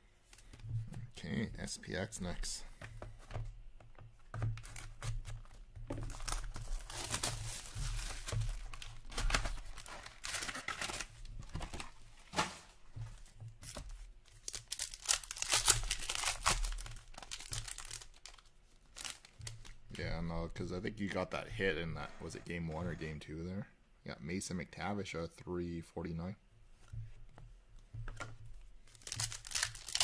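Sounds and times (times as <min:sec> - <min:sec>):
box and packs rustling: 0:02.5 - 0:19.8, 0:28.9 - 0:30.0
plastic wrappers tearing: 0:04.6 - 0:12.5, 0:14.4 - 0:19.8, 0:28.9 - 0:30.0.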